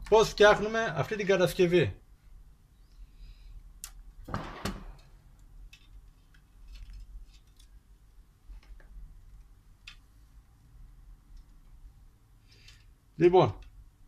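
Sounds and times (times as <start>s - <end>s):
light clicks of tools: 12.5s - 13.0s.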